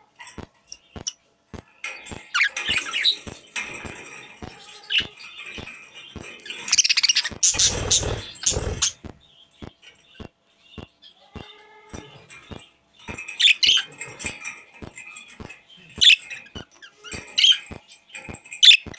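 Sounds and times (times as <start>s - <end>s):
budgerigars chirping and warbling: 0.3s - 1.2s, 1.8s - 18.9s
sharp clicks: 0.4s - 13.2s.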